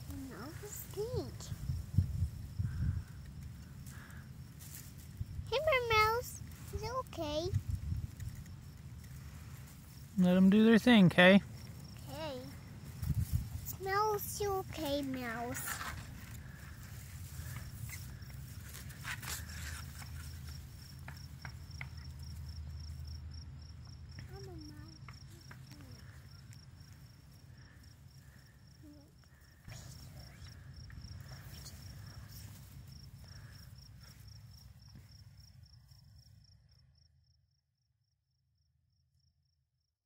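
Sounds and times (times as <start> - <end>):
rustles of dry grass: 0.0 - 10.5, 12.4 - 21.6
cricket chirping: 0.0 - 39.6.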